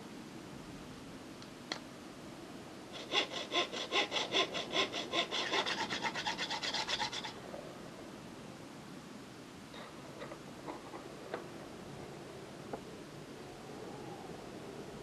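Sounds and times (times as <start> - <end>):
hacksaw cutting plastic: 3.0 - 7.3.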